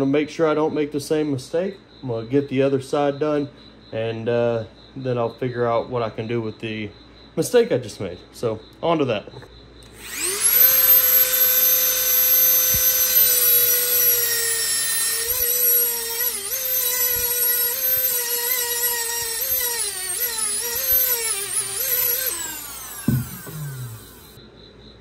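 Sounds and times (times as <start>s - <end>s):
rotary tool grinding steel: 9.8s - 24.4s.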